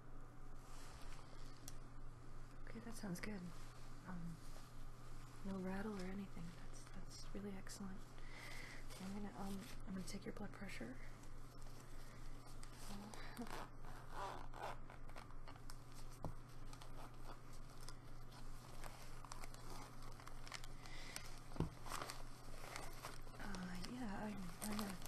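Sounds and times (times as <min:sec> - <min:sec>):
low hum: 0:00.0 - 0:25.0
rustling: 0:00.5 - 0:25.0
hook-and-loop fastener ripping: 0:16.6 - 0:25.0.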